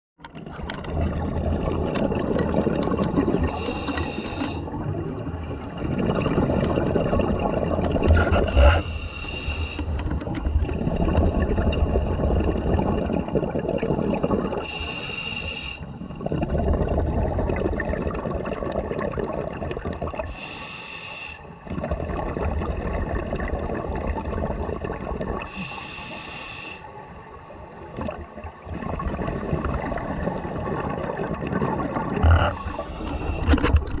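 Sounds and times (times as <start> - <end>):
exhaled air bubbling: 0.2 - 20.8, 21.4 - 34.0
regulator inhale hiss: 3.4 - 4.7, 8.5 - 9.9, 14.6 - 15.9, 20.3 - 21.6, 25.5 - 26.9, 32.5 - 33.5.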